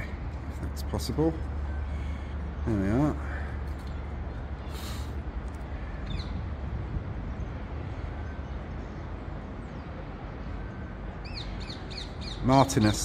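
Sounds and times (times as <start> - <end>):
steady low rumble: 0.0 - 8.9.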